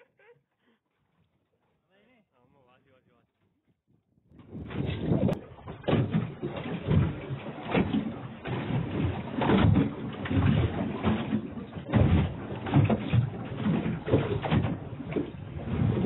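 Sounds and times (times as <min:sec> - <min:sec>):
squid splashing and squirting water: 0:04.4 - 0:16.0.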